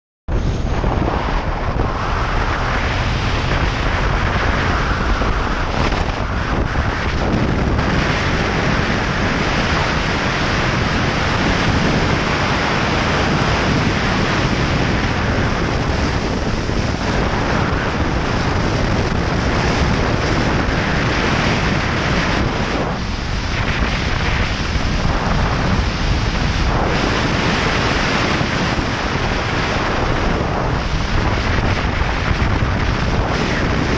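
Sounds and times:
wind rush over microphone: 0:00.3 - 0:33.9.

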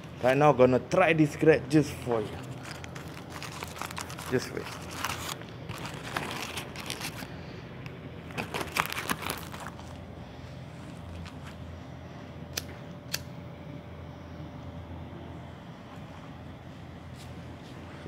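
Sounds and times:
steady low hum: 0:00.0 - 0:18.0
phone being handled: 0:02.4 - 0:07.3.

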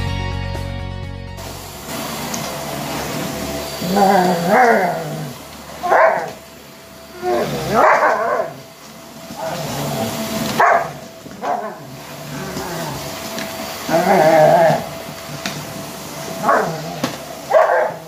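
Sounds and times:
vacuum cleaner humming: 0:01.4 - 0:18.0
puppy barking: 0:05.8 - 0:06.4, 0:07.2 - 0:08.6, 0:10.5 - 0:11.9, 0:16.4 - 0:16.9, 0:17.5 - 0:18.0.

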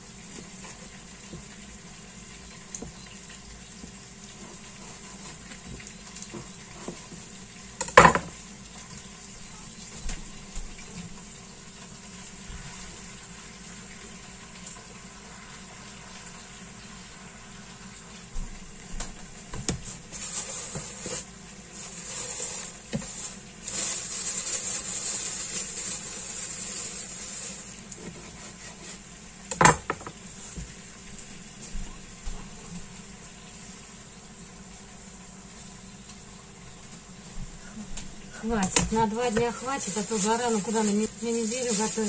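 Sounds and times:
faint steady hiss: 0:00.0 - 0:42.0
knock on cutting board: 0:07.9 - 0:08.3, 0:29.6 - 0:30.2.

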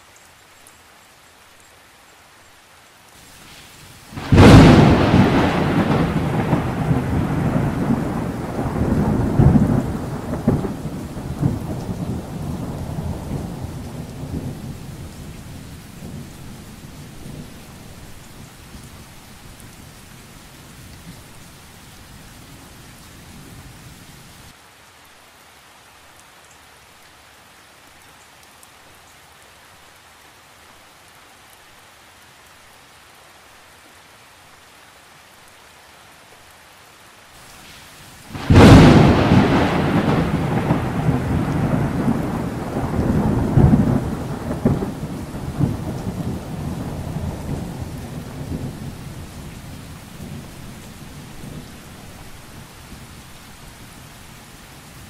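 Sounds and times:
rain hissing: 0:00.0 - 0:55.0
thunderclap rumbling: 0:04.1 - 0:14.8, 0:38.3 - 0:49.5.

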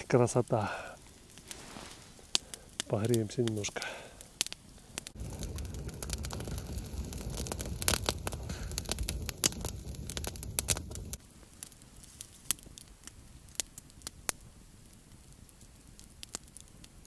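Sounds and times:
campfire crackling and popping: 0:00.0 - 0:17.0
low rumble: 0:05.1 - 0:11.2.

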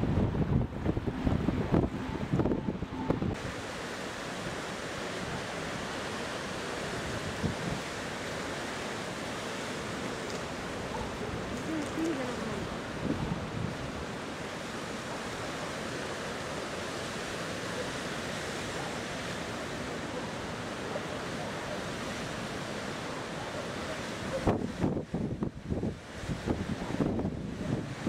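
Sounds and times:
wind buffeting microphone: 0:00.0 - 0:03.5, 0:06.9 - 0:08.0, 0:10.4 - 0:14.2, 0:24.3 - 0:28.0
floodwater rushing: 0:00.0 - 0:28.0.

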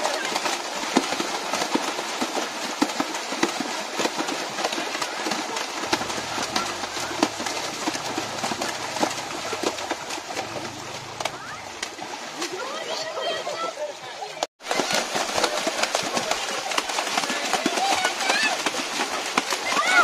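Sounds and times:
children splashing in water: 0:00.0 - 0:20.0
children's voices: 0:05.9 - 0:20.0.

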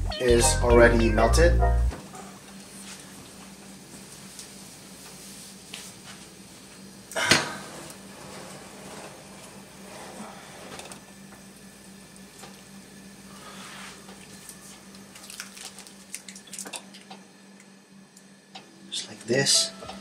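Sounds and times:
metal oven rack scraping: 0:07.7 - 0:10.9.

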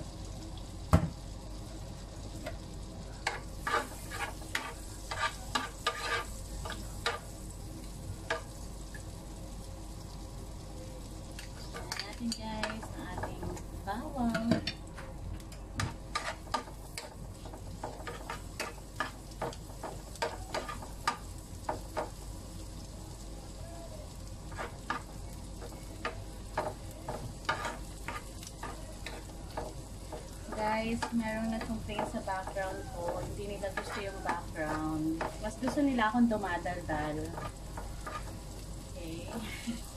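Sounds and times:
garlic sizzling in oil: 0:00.0 - 0:39.9
wooden spatula scraping a pan: 0:03.2 - 0:07.3, 0:15.8 - 0:21.2, 0:24.5 - 0:25.8, 0:26.5 - 0:38.5.

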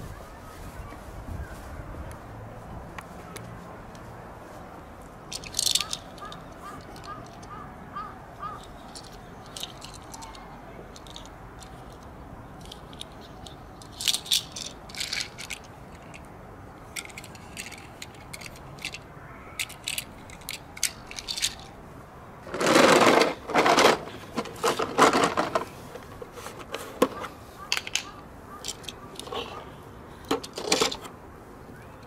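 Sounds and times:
toy cars clicking on concrete: 0:05.3 - 0:07.6, 0:08.4 - 0:16.3, 0:17.0 - 0:21.8, 0:22.4 - 0:29.6, 0:30.2 - 0:31.1
toy car scraping on concrete: 0:22.4 - 0:27.3.

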